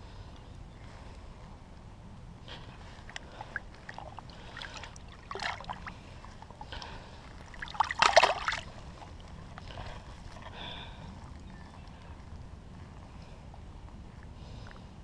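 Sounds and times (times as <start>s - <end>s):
water splashing and sloshing: 2.5s - 11.5s.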